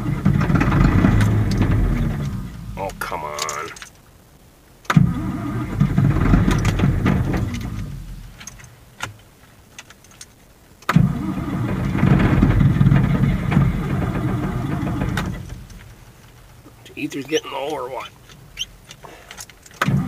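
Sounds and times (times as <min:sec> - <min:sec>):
diesel tractor engine starting: 0:00.0 - 0:03.8, 0:04.9 - 0:08.4, 0:10.9 - 0:16.0, 0:16.6 - 0:20.0.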